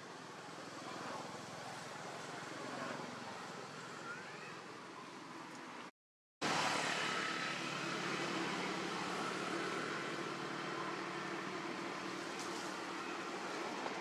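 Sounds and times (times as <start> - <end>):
outdoor background hum and hiss: 0.0 - 14.0.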